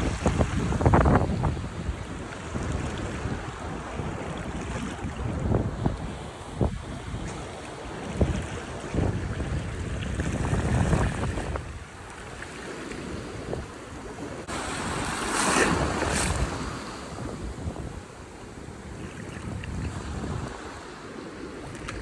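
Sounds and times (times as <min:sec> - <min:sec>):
small waves washing: 0:00.0 - 0:22.0
wind buffeting microphone: 0:00.0 - 0:22.0
splashing rush of water: 0:14.4 - 0:16.9.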